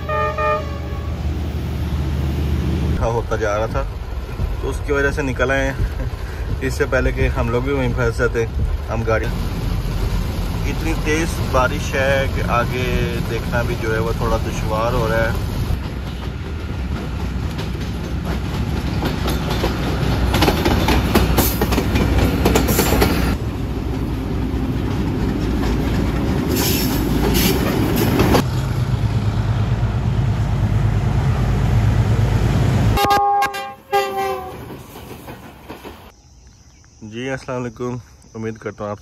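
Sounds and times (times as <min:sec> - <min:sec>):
train horn: 0:00.0 - 0:01.3, 0:33.0 - 0:34.8
train rumbling on rails: 0:00.0 - 0:36.2.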